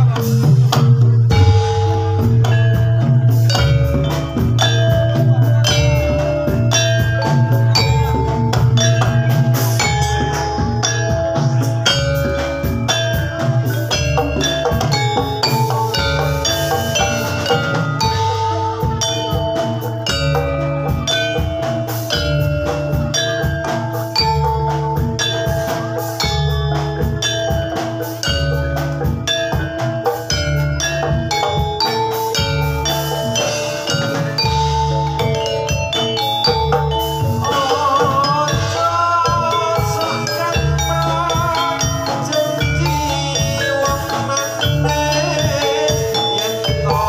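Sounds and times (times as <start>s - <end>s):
low drum strokes: 0.0s - 31.8s
metallophones ringing: 0.0s - 47.0s.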